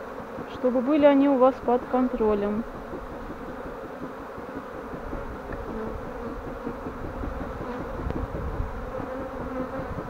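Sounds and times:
single bee humming past: 0.0 - 10.0
swarm of bees buzzing: 0.0 - 10.0.

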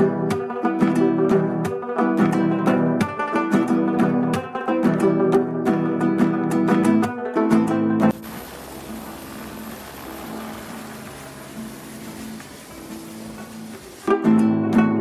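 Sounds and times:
acoustic guitar music: 0.0 - 15.0
helicopter noise: 8.1 - 14.0.

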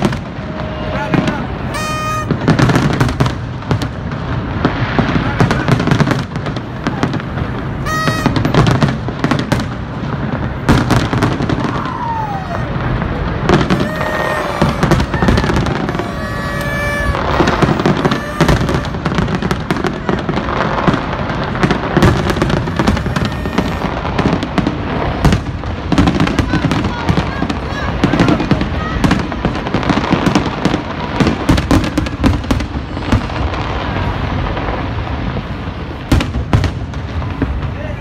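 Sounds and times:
fireworks bangs and crackling: 0.0 - 38.0
short whistling tones: 7.9 - 8.4, 13.7 - 19.0, 22.6 - 23.9.

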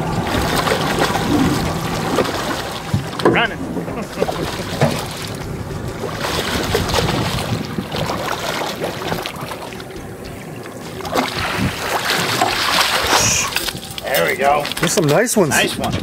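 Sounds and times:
boat and water noise: 0.0 - 16.0
fish splashing at surface: 11.0 - 15.2.

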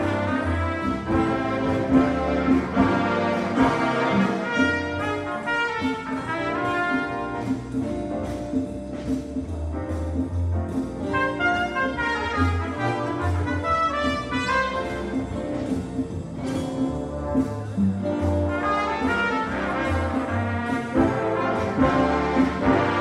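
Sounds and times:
brass section: 0.0 - 7.8, 11.1 - 15.6, 17.1 - 23.0
big band playing swing: 0.0 - 23.0.

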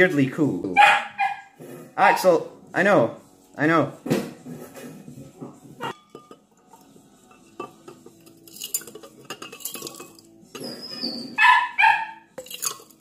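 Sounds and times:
stones clinking against glass: 7.4 - 11.0, 12.4 - 13.0.

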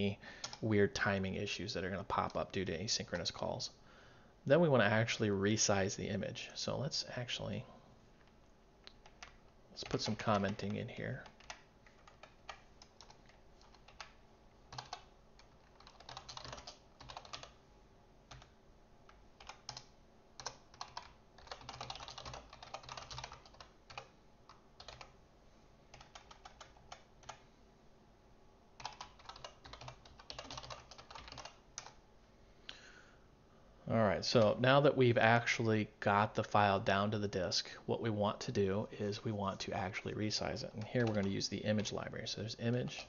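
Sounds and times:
keyboard typing: 8.9 - 17.6, 18.3 - 25.2, 25.9 - 27.4, 28.8 - 32.0, 40.8 - 41.9.

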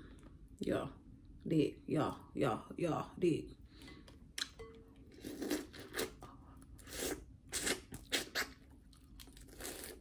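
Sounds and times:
wet crunching and slurping: 6.8 - 10.0.

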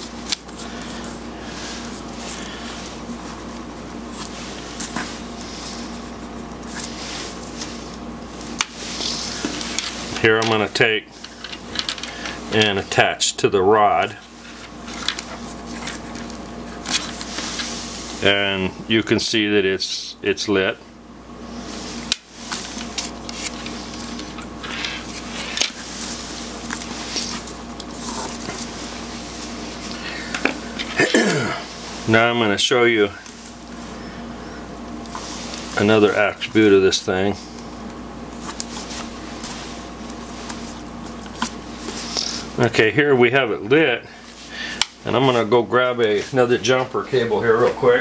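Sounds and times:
rustling of wires: 0.0 - 13.0, 14.0 - 18.3, 21.5 - 31.0
steady low hum: 0.0 - 48.0
wires clicking and rustling: 6.6 - 12.8.

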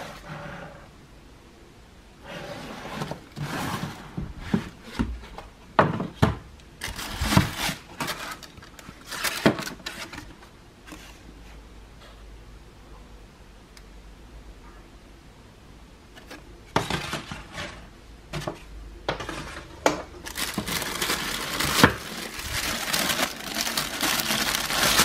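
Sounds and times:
cardboard rustling and scraping: 2.2 - 5.4, 6.8 - 11.4, 16.2 - 18.6, 19.2 - 25.0.

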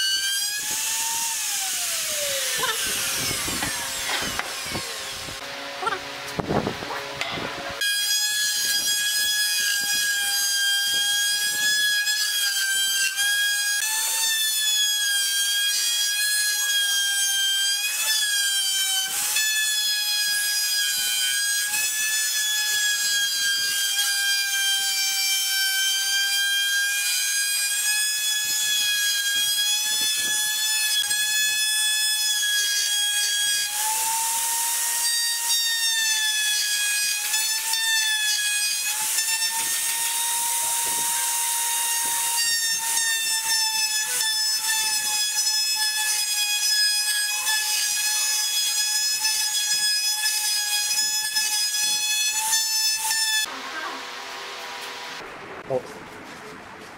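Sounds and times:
router motor whine: 0.0 - 55.2.

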